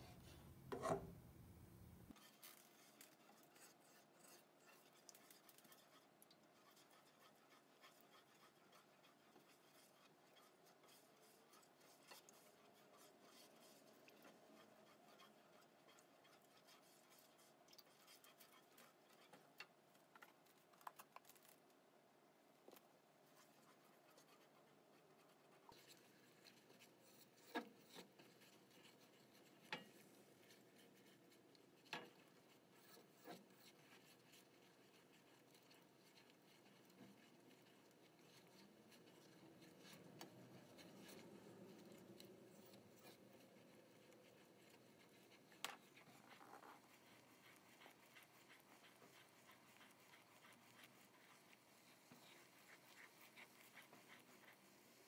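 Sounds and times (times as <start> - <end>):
spatula scraping a saucepan: 0.0 - 1.1, 2.1 - 20.1, 23.3 - 55.0.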